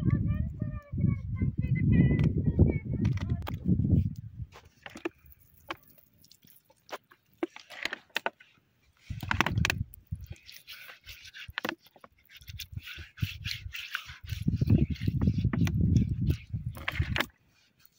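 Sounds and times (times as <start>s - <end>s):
hand rubbing wet rock: 3.1s - 17.9s
water trickling onto stone: 4.7s - 8.4s, 9.0s - 17.9s.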